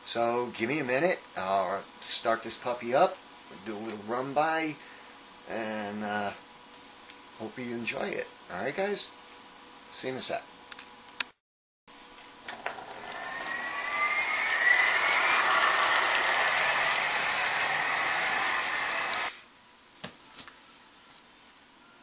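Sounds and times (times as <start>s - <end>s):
jet engine sound effect: 13.4s - 19.3s.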